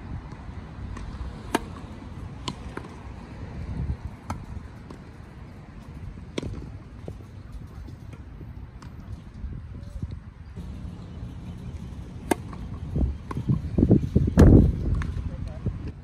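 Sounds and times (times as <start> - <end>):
tennis racket hitting ball: 1.0 - 1.8, 10.6 - 13.5.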